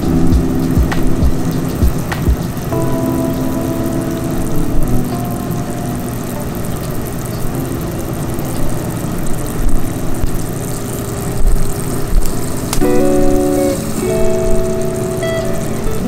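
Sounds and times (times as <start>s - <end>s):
low thumps: 0.0s - 2.5s.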